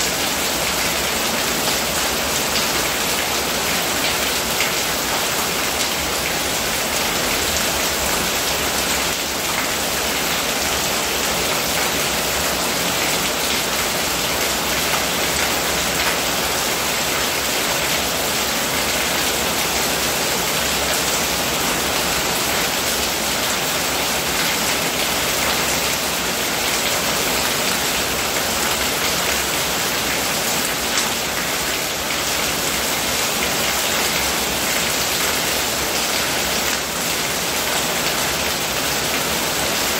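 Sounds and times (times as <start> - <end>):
rain pattering on ground and roof: 0.0 - 39.9.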